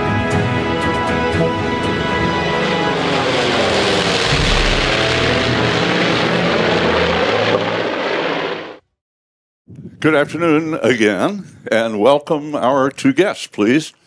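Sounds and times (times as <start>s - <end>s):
propeller plane flyby: 0.1s - 8.8s.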